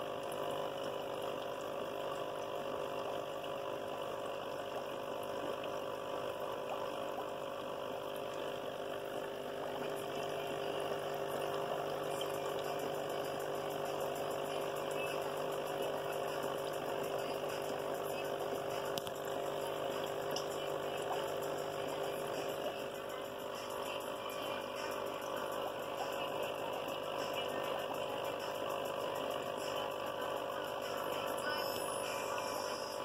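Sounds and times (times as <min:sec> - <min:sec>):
water bubbling: 0:00.0 - 0:31.1
air pump humming: 0:00.0 - 0:33.0.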